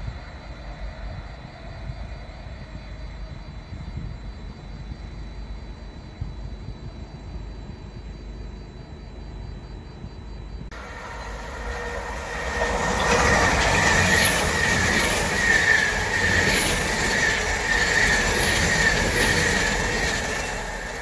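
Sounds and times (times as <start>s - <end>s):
train passing at speed: 0.0s - 7.2s, 10.7s - 21.0s
faint low rumble: 0.0s - 14.5s
wheel clatter on rails: 10.9s - 21.0s.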